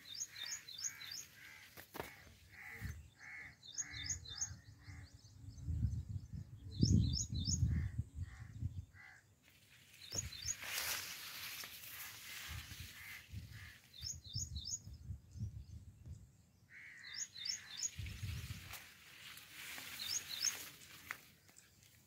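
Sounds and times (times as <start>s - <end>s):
crows cawing: 0.3s - 4.0s, 16.7s - 17.6s.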